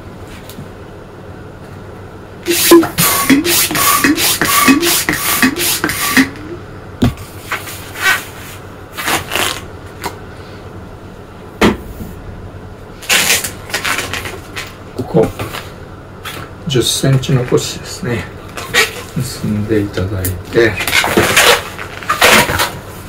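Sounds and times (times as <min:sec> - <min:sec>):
balloons squeaking: 0:02.5 - 0:06.3, 0:18.6 - 0:19.1, 0:20.9 - 0:22.4.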